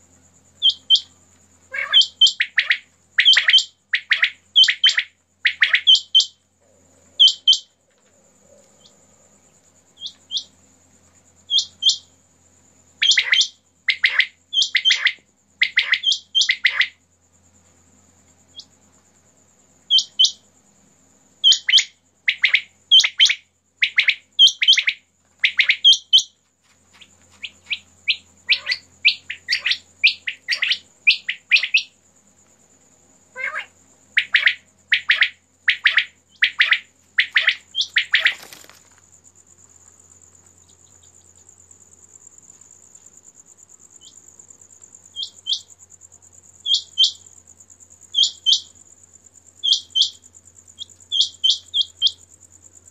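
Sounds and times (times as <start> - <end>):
quails calling: 1.7 - 6.4, 7.2 - 7.7, 11.5 - 12.0, 13.0 - 17.0, 21.4 - 26.3, 27.4 - 31.9, 33.3 - 38.8, 46.6 - 47.2, 48.1 - 48.7, 49.6 - 50.2, 51.1 - 52.2.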